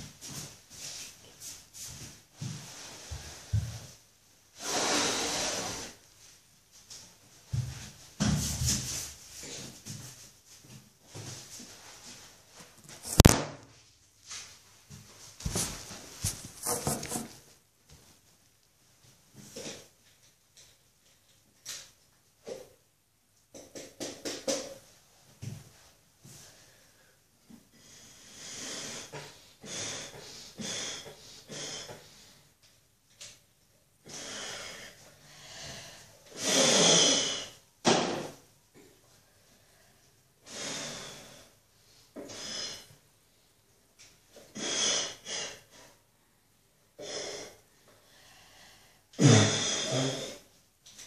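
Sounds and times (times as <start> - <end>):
child blowing through soapy sock: 4.6 - 6.0, 36.3 - 37.6, 44.5 - 45.7.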